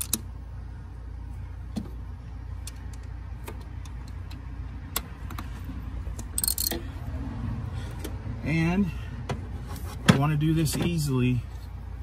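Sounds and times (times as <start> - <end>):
ratchet wrench clicking: 6.2 - 6.8.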